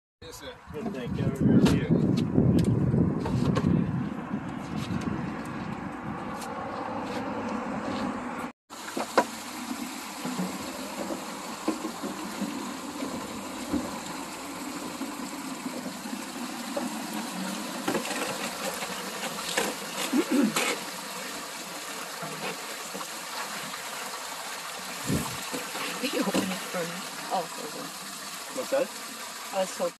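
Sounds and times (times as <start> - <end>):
road traffic hum: 2.1 - 21.3
water streaming into plastic jugs: 8.7 - 30.0.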